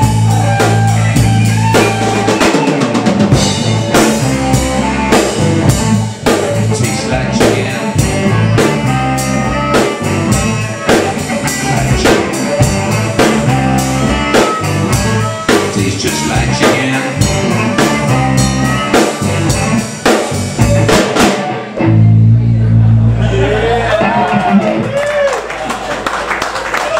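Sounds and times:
drum kit beat: 0.0 - 22.1
electric guitars: 0.0 - 26.0.

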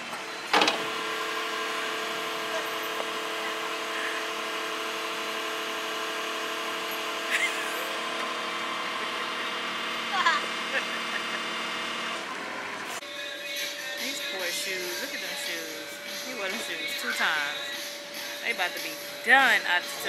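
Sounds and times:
mini excavator humming with whine: 0.0 - 13.0.

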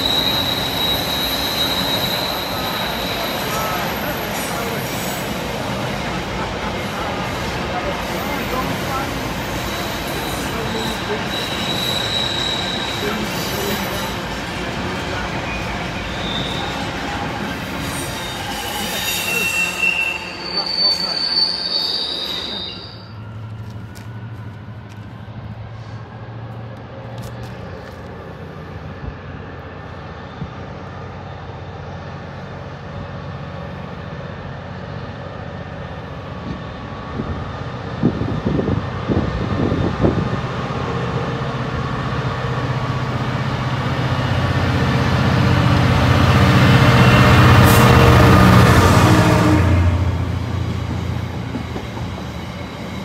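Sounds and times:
high wheel squeal: 0.0 - 5.6, 8.0 - 23.8
diesel locomotive engine: 0.0 - 53.0.

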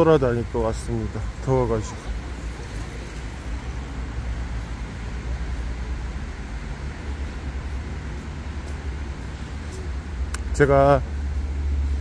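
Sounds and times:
city street traffic: 0.0 - 12.0.

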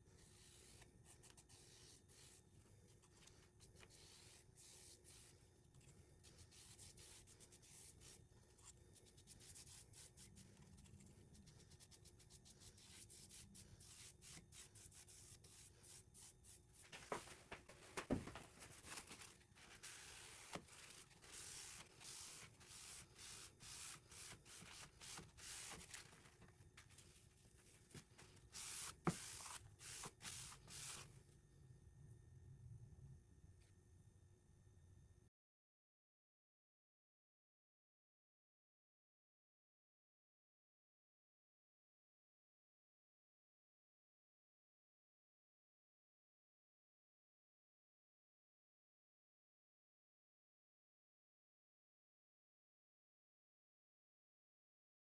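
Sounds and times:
paper towel wiping: 0.2 - 5.4, 6.2 - 31.1
foam brush rubbing on wood: 19.7 - 26.1, 28.5 - 31.0.

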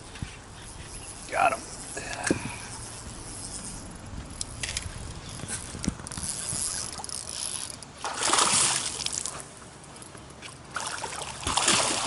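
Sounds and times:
fish splashing at water surface: 8.0 - 9.4, 10.7 - 12.0.

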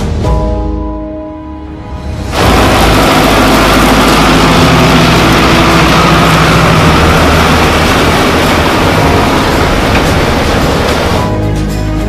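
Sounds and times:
round baler working: 2.3 - 11.5
tractor engine under load: 2.4 - 11.4.

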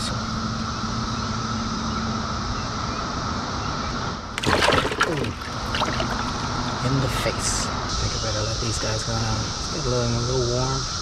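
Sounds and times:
cicada chorus drone: 0.0 - 11.0
fish splashing water: 4.3 - 6.9.

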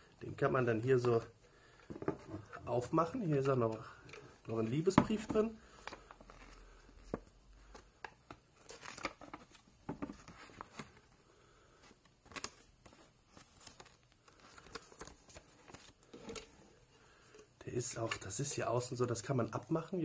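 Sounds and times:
paper rustling and crinkling: 5.4 - 11.1, 12.2 - 16.6.

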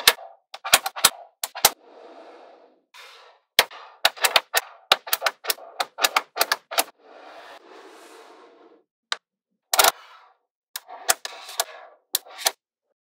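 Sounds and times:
magnetic balls clicking together: 3.6 - 6.9.

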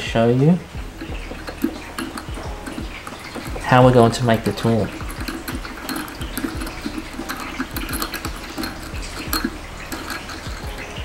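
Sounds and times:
metal bolt clicking and scraping: 0.9 - 11.0.

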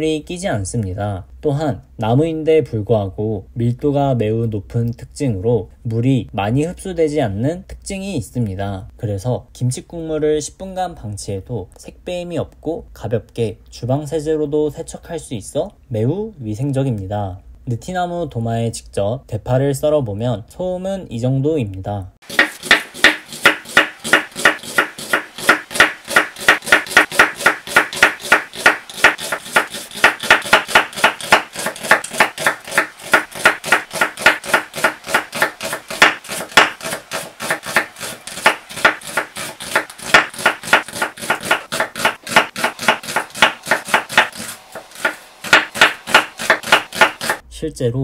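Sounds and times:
knife chopping on wooden board: 22.2 - 47.4.

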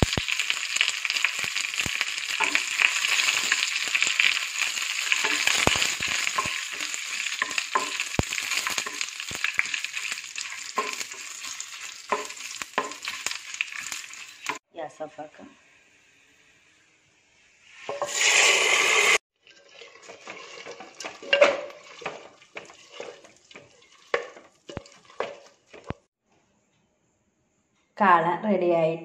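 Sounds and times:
seeds popping: 0.0 - 14.6
spatula stirring in a pan: 0.0 - 14.6, 19.4 - 26.1
spices sizzling in hot oil: 0.0 - 14.7, 17.4 - 26.1.

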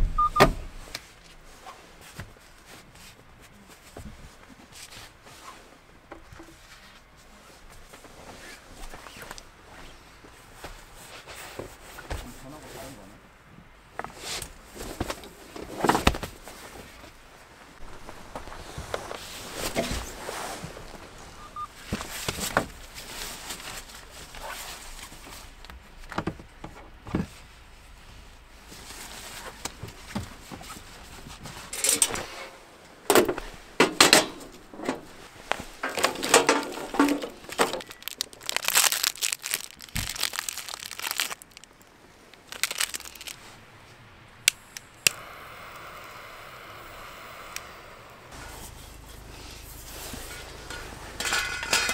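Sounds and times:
foil wrapper crinkling: 35.8 - 43.5.

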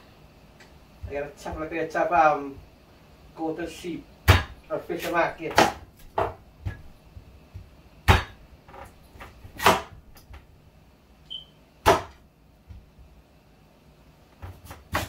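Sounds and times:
knife chopping on wooden board: 4.3 - 6.8, 8.1 - 8.4, 9.2 - 10.0, 11.8 - 12.2, 14.4 - 15.0.

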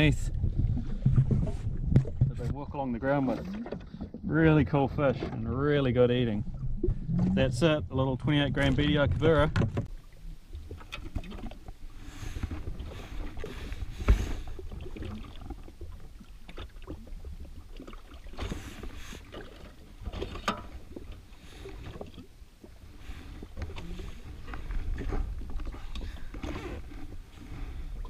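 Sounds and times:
low steady rumble: 0.0 - 19.1.

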